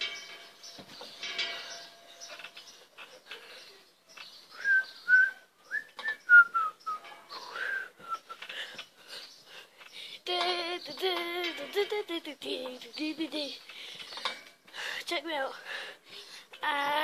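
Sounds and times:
faint outdoor noise: 0:00.0 - 0:17.0
person whistling: 0:04.6 - 0:07.0, 0:07.6 - 0:08.4.

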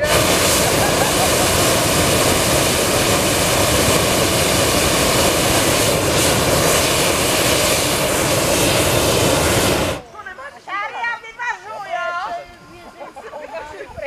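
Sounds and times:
propane burner blast: 0:00.0 - 0:10.1.

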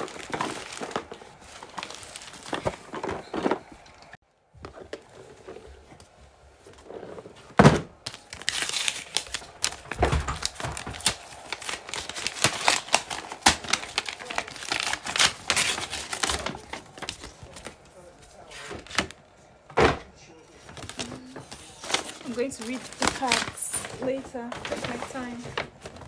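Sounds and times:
tissue paper crinkling and rustling: 0:00.0 - 0:03.6, 0:08.0 - 0:19.2, 0:20.6 - 0:26.0.

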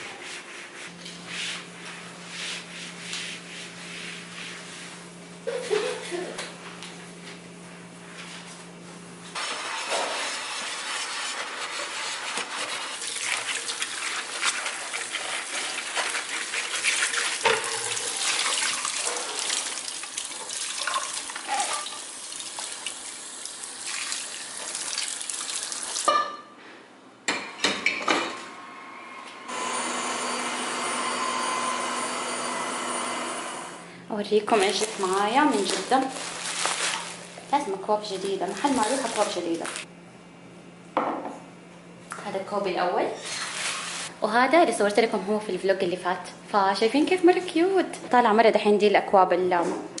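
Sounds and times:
robot vacuum motor whine: 0:29.5 - 0:33.8.

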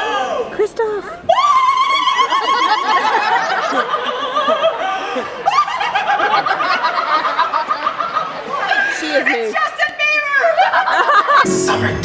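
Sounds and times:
audience laughing: 0:02.0 - 0:09.6, 0:10.3 - 0:12.0.

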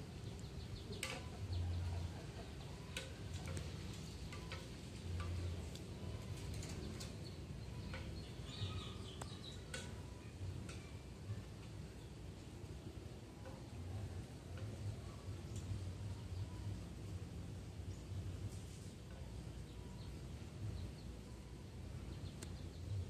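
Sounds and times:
faint bird chirps: 0:00.0 - 0:14.0
faint clicks and ticks: 0:02.6 - 0:11.8, 0:13.4 - 0:16.8, 0:22.3 - 0:22.7.

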